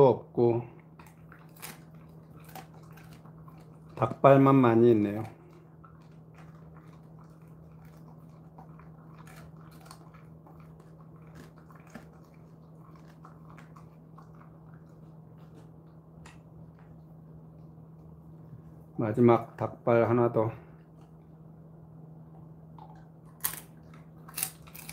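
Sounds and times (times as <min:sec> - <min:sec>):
steady low hum: 0:00.0 - 0:24.9
dog chewing and crunching: 0:00.8 - 0:17.1, 0:22.4 - 0:24.9.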